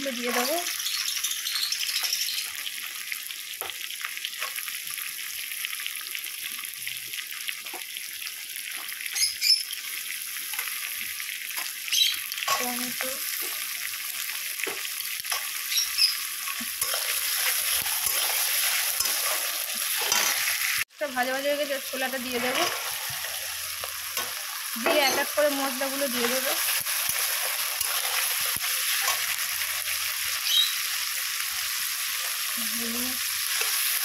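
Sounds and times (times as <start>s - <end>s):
onions sizzling in oil: 0.0s - 34.0s
metal spatula scraping a pan: 15.3s - 20.8s, 22.2s - 25.4s.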